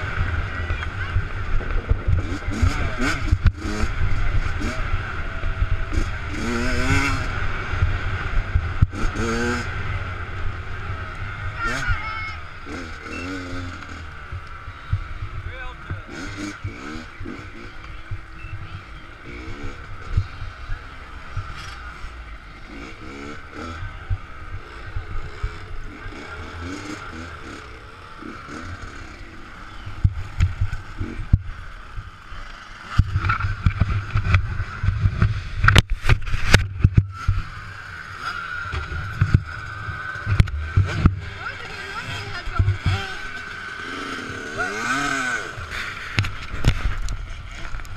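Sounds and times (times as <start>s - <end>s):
wind rumble on microphone: 0.0s - 7.0s
minibike engine running: 0.0s - 47.9s.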